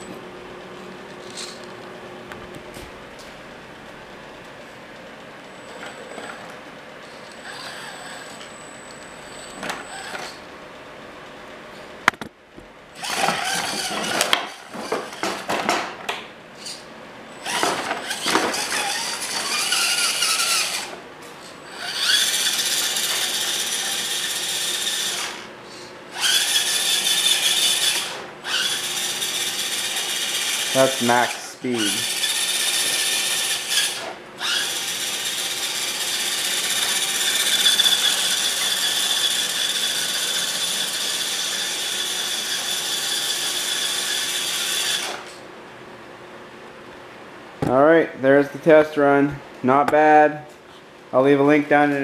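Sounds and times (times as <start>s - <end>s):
electric motor and gears whining: 5.4s - 10.4s, 12.9s - 15.6s, 16.6s - 45.4s.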